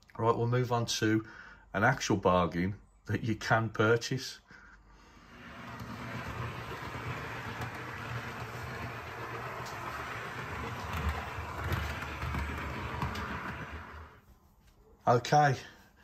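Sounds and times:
model train running with hum: 5.5s - 14.2s.

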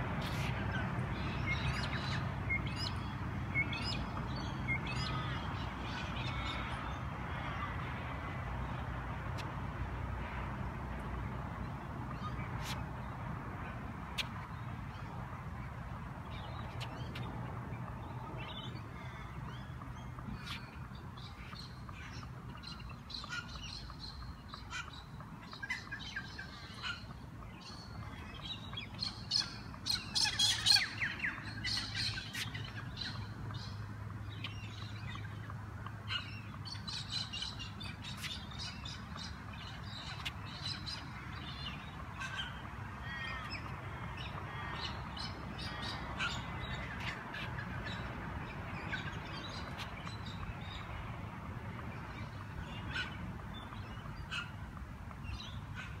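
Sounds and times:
birds chirping and squawking: 20.3s - 33.7s, 36.0s - 50.9s, 52.1s - 54.6s.

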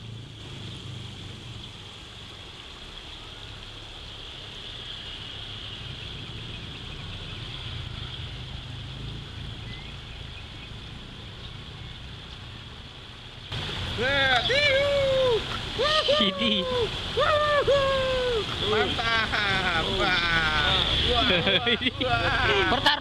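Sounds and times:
passing road traffic rumble: 0.0s - 23.0s.

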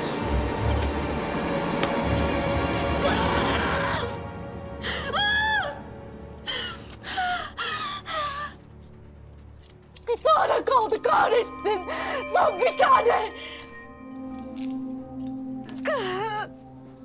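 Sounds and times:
dramatic background music: 0.0s - 17.0s
woman crying and gasping: 2.8s - 8.8s, 10.2s - 13.8s, 15.6s - 16.6s.

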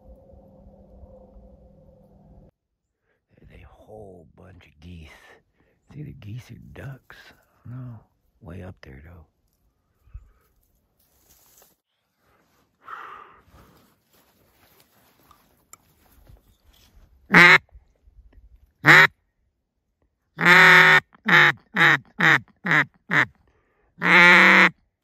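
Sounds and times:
duck call quacks: 17.3s - 17.6s, 18.8s - 19.1s, 20.4s - 23.3s, 24.0s - 24.7s.

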